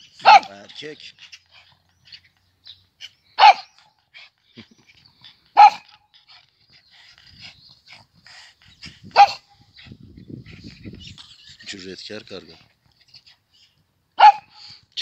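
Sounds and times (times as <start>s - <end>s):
dog barking: 0.2s - 0.6s, 3.4s - 3.8s, 5.6s - 5.9s, 9.2s - 9.4s, 14.2s - 14.5s.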